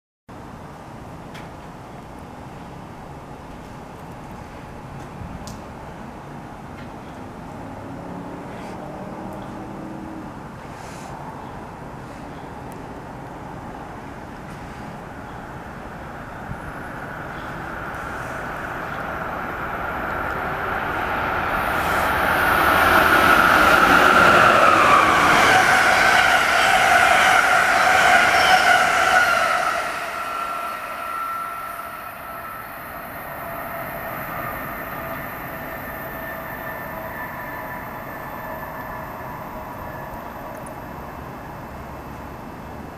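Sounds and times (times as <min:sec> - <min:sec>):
train passing at speed: 0:00.4 - 0:42.9
wheel-on-rail noise: 0:13.9 - 0:42.9.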